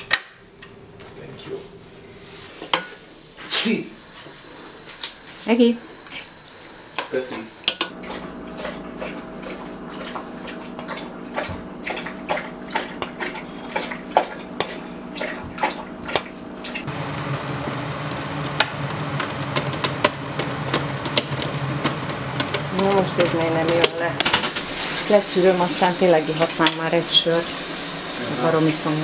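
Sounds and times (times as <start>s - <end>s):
dog lapping water: 6.1s - 16.9s.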